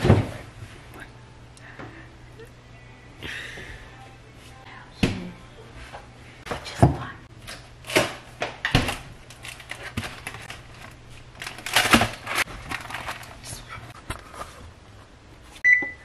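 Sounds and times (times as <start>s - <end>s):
low steady hum: 0.0s - 16.0s
packaging crinkling: 9.3s - 14.6s.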